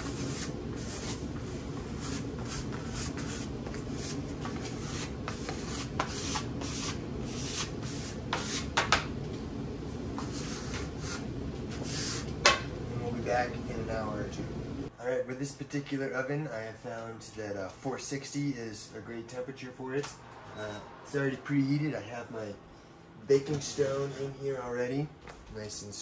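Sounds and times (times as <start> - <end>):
scraper scraping flour on stone: 0.0 - 8.8.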